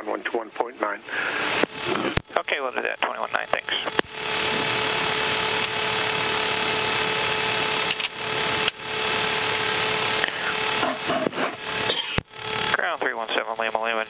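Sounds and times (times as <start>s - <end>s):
jet cockpit noise while taxiing: 0.0s - 14.0s.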